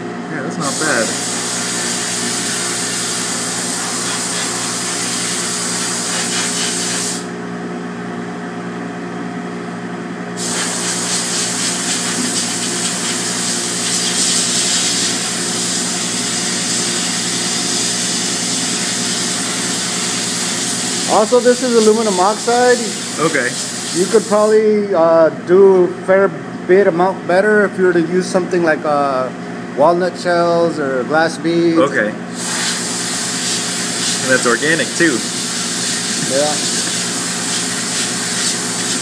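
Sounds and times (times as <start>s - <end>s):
machine hum: 0.0s - 39.0s
sandblaster hissing: 0.6s - 7.4s, 10.4s - 24.7s, 32.3s - 39.0s.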